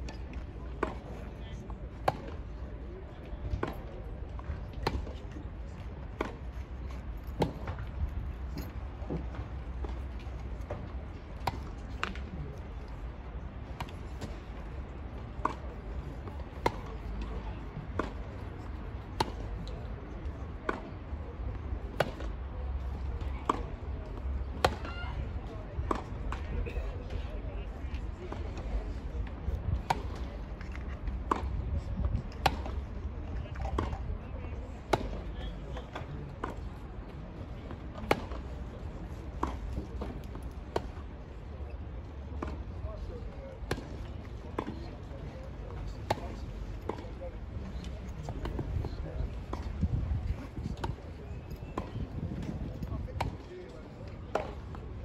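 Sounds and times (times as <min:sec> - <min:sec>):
tennis balls struck by rackets: 0:01.9 - 0:02.5, 0:03.5 - 0:13.0, 0:13.6 - 0:19.7, 0:21.5 - 0:24.9, 0:29.3 - 0:32.9, 0:34.9 - 0:36.8, 0:37.7 - 0:38.6, 0:43.6 - 0:44.8, 0:45.8 - 0:53.5, 0:54.3 - 0:54.8
tennis ball bouncing: 0:38.0 - 0:38.4.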